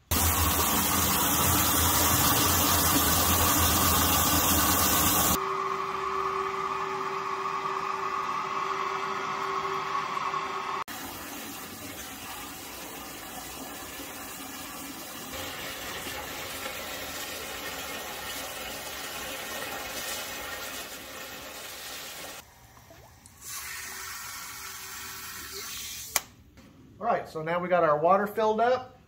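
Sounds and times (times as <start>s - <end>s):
water pouring into plastic drum: 0.0s - 5.4s, 10.9s - 25.8s.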